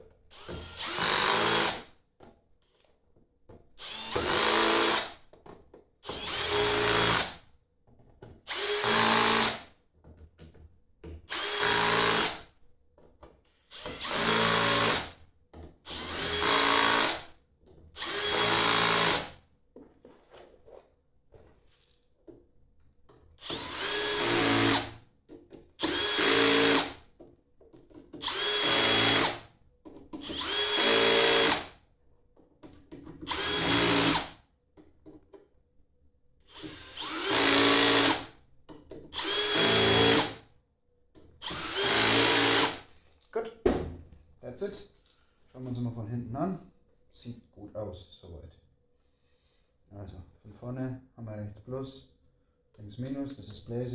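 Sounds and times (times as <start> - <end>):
cordless drill driving screws: 0.3 - 1.8, 3.8 - 5.1, 6.0 - 7.3, 8.5 - 9.6, 11.3 - 12.4, 13.7 - 15.1, 15.9 - 17.2, 18.0 - 19.3, 23.4 - 24.9, 25.8 - 27.0, 28.2 - 29.4, 30.2 - 31.7, 33.3 - 34.3, 36.5 - 38.3, 39.1 - 40.4, 41.4 - 42.9.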